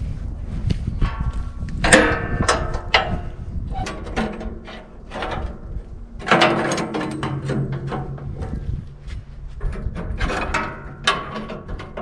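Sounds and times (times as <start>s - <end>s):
sharp metallic knocks: 1.0s - 3.3s
saw blade clanking and scraping: 3.8s - 8.7s, 9.7s - 12.0s.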